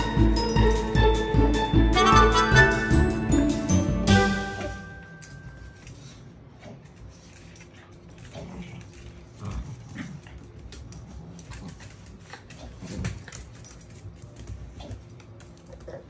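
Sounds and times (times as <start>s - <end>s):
musical jingle: 0.0s - 5.9s
small dogs play-fighting: 5.9s - 16.0s.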